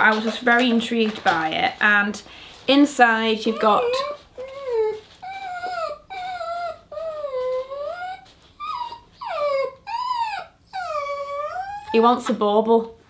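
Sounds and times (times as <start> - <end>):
dog whining: 3.5 - 12.0.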